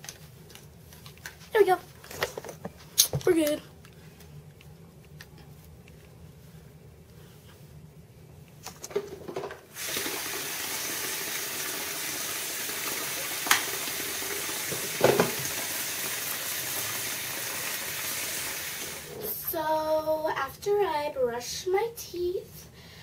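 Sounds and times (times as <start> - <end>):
tap running into sink: 13.0 - 13.9, 14.5 - 15.7.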